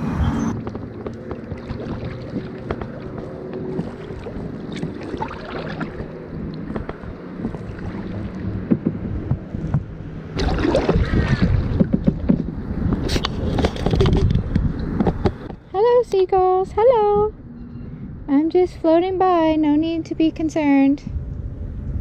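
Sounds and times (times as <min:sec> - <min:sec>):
paddle splashing in water: 0:00.6 - 0:08.7, 0:10.4 - 0:12.4
water lapping against plastic hull: 0:00.6 - 0:15.5.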